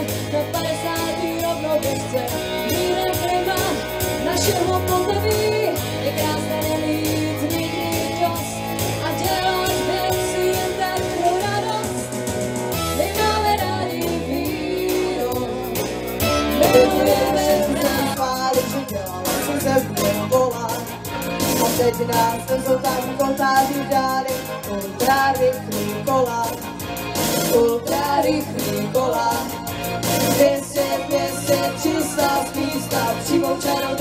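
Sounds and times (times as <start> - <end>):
women singing: 0.0 - 20.9, 21.5 - 26.6, 27.4 - 29.6, 30.2 - 34.0
bass notes: 0.0 - 34.0
keyboard: 0.0 - 34.0
drum beat: 16.4 - 18.2.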